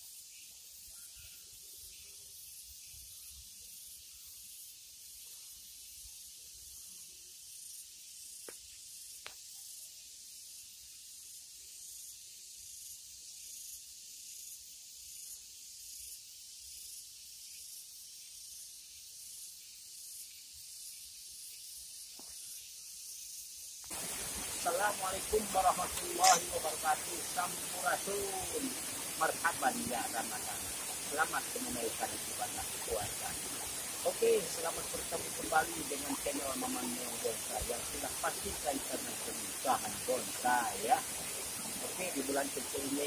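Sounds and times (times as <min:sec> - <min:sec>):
high-pitched hiss: 0:00.0 - 0:43.0.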